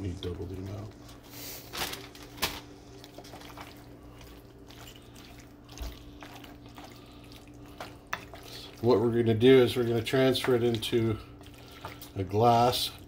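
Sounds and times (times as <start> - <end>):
steady low hum: 0.0 - 13.0
spoon stirring pasta in skillet: 3.0 - 13.0.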